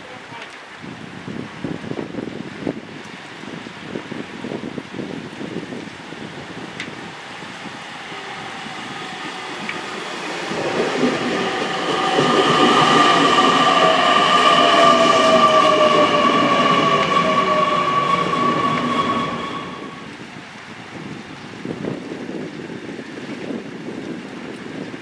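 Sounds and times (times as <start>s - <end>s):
wheels rumbling on rail: 4.1s - 22.4s
electric train motor whine: 6.6s - 20.1s.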